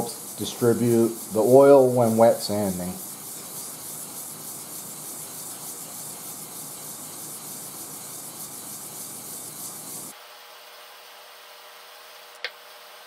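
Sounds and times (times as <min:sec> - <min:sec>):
gritty sanding on metal: 0:00.0 - 0:10.1.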